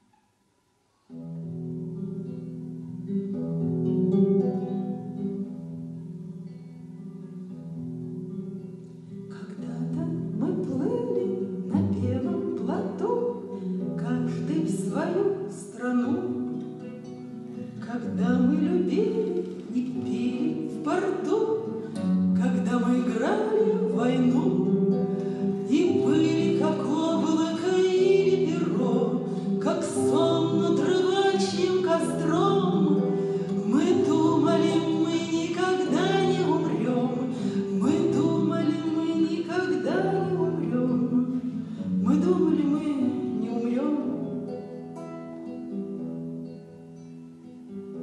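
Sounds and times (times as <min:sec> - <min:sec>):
classical guitar: 0:00.0 - 0:48.0
woman singing into microphone: 0:09.3 - 0:16.4, 0:17.8 - 0:44.3.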